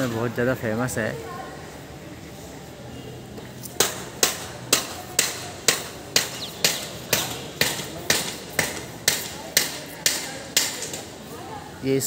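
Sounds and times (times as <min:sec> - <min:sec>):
hammer strikes with ring: 0:03.8 - 0:11.0.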